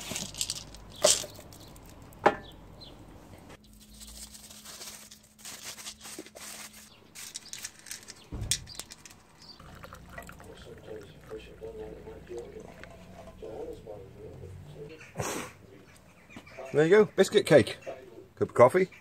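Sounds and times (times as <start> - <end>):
rustling: 0.0 - 2.1, 3.6 - 9.7
sharp knocks on stone worktop: 2.2 - 2.5.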